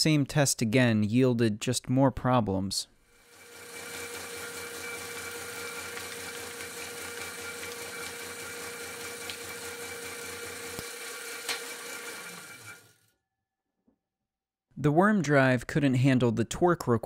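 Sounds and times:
plastic shredder humming and whining: 0:03.2 - 0:13.1.

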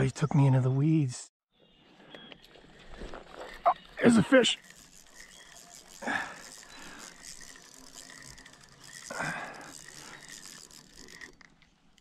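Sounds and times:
fishing reel ratcheting clicks: 0:03.9 - 0:12.0.

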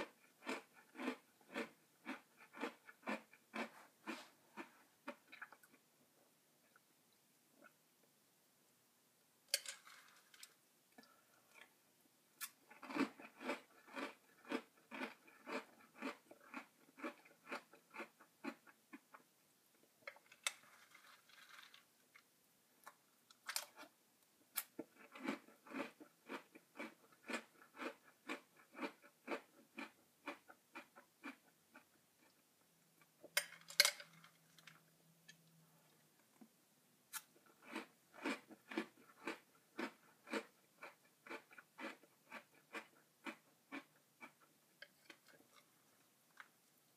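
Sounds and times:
cereal crunching while chewed: 0:00.0 - 0:05.8, 0:09.6 - 0:10.6, 0:12.4 - 0:19.2, 0:20.3 - 0:22.3, 0:24.6 - 0:32.4, 0:37.1 - 0:46.7.

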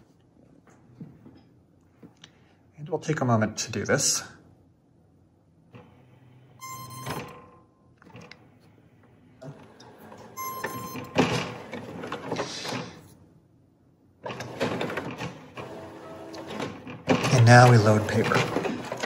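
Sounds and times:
printer mechanism whirring and clattering: 0:05.7 - 0:08.6, 0:09.4 - 0:13.1, 0:14.2 - 0:19.0
short electronic beep: 0:06.6 - 0:07.3, 0:10.4 - 0:11.1.

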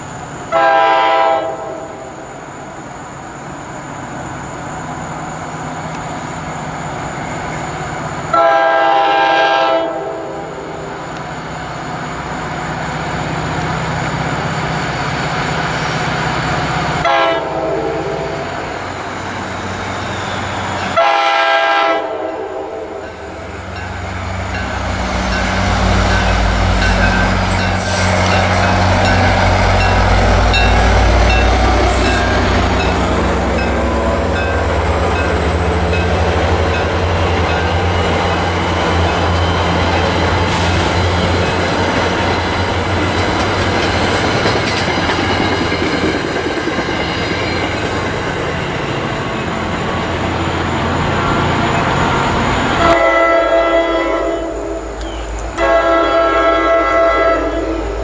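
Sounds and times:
train horn blasts: 0:00.5 - 0:02.3, 0:08.3 - 0:10.8, 0:17.0 - 0:18.5, 0:20.9 - 0:23.2, 0:52.8 - 0:58.0
locomotive engine drone: 0:10.1 - 0:58.0
train wheels clicking over rails: 0:23.0 - 0:52.9.

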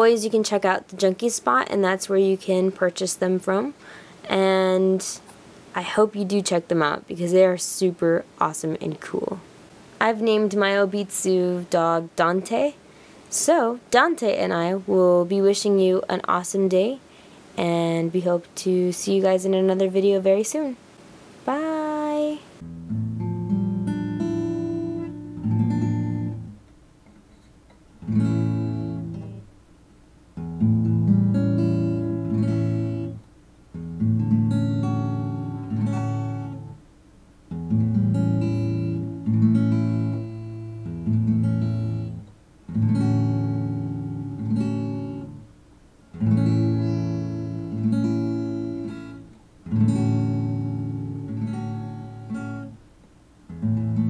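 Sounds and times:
acoustic guitar strumming chords: 0:22.6 - 0:26.7, 0:27.9 - 0:29.6, 0:30.3 - 0:36.9, 0:37.5 - 0:45.5, 0:46.1 - 0:52.8, 0:53.5 - 0:54.0.

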